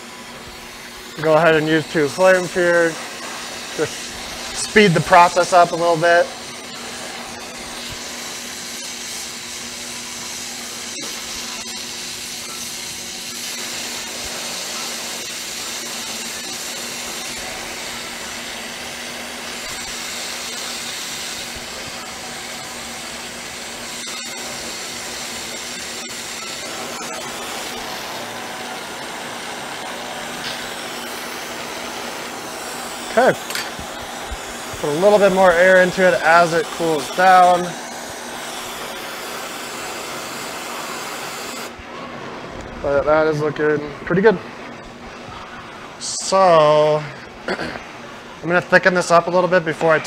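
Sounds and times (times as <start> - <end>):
torch flames hissing: 0.0 - 41.9
steady low hum: 0.0 - 46.0.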